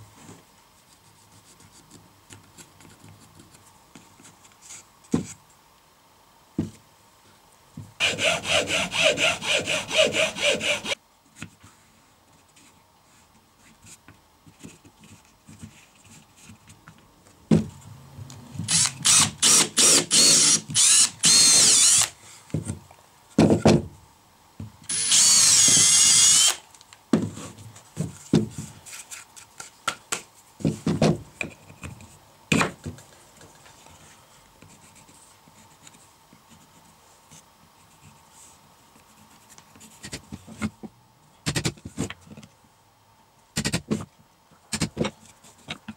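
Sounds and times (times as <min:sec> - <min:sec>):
cordless drill boring into wood: 0:08.0 - 0:11.0, 0:18.7 - 0:22.1, 0:24.9 - 0:26.6.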